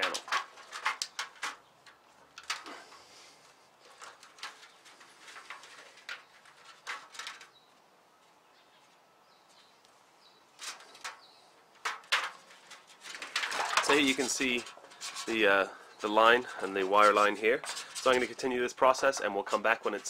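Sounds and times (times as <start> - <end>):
aluminium foil crinkling: 0.0 - 2.9, 3.8 - 7.6, 10.5 - 20.0.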